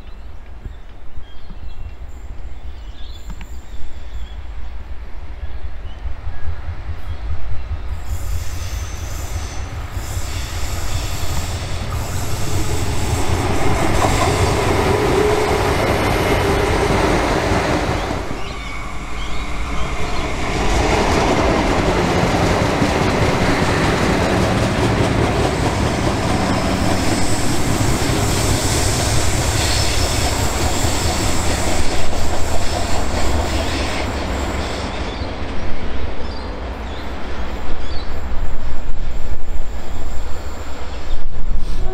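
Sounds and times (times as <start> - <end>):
diesel train engine and rolling: 1.8 - 41.9
train wheel squeal: 7.8 - 35.4.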